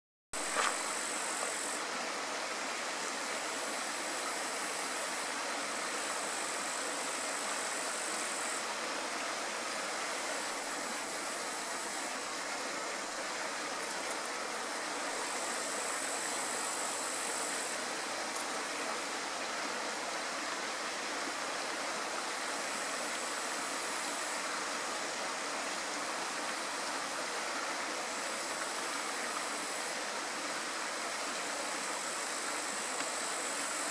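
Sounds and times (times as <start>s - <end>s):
thin high buzz: 0.4s - 1.9s.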